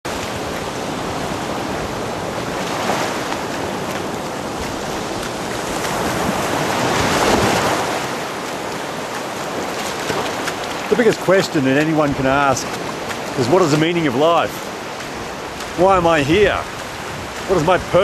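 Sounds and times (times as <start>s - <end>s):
wind on microphone: 0.1s - 10.7s, 14.7s - 18.0s
ocean surf breaking waves: 0.1s - 18.0s.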